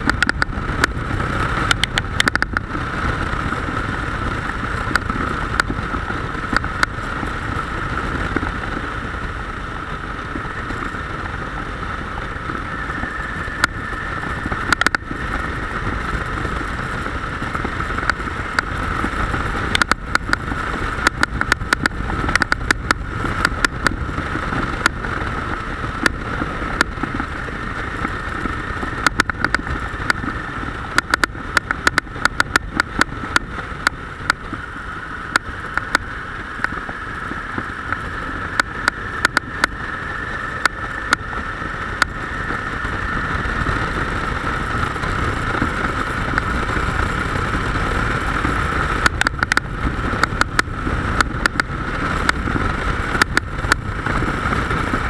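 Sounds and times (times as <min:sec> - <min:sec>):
sharp clicks: 0:00.0 - 0:01.0, 0:01.6 - 0:02.7, 0:14.6 - 0:15.1, 0:19.7 - 0:20.4, 0:21.0 - 0:24.0, 0:29.0 - 0:30.3, 0:30.9 - 0:34.4, 0:35.3 - 0:36.8, 0:38.6 - 0:39.8, 0:49.0 - 0:52.4
motorcycle engine: 0:00.0 - 0:55.0
rushing wind: 0:00.0 - 0:55.0.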